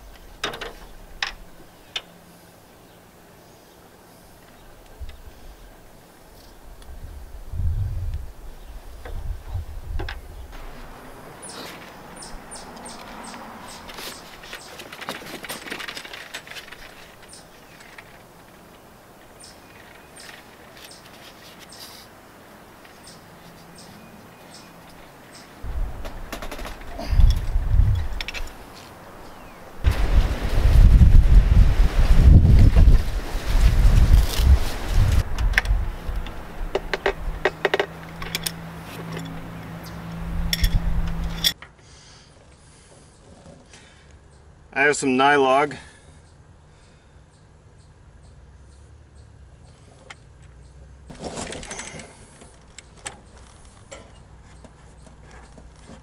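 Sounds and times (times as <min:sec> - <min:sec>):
wind on microphone: 0:06.7 - 0:11.0, 0:25.6 - 0:28.6, 0:29.8 - 0:37.5, 0:40.2 - 0:41.4
rustling and clicks of tubing: 0:12.8 - 0:22.2, 0:32.5 - 0:41.8, 0:49.9 - 0:56.0
faint hiss: 0:17.4 - 0:23.9
wrench clinking on metal fittings: 0:40.5 - 0:41.6.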